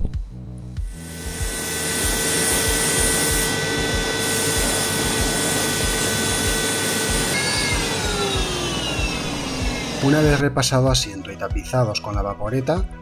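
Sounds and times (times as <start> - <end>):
steam cleaner motor whine: 0.8 - 10.4
steam hiss: 0.9 - 10.4.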